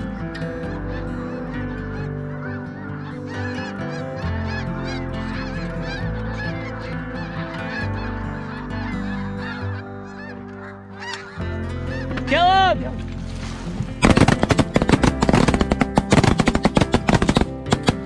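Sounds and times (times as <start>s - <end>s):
flock of geese honking: 0.0s - 18.0s.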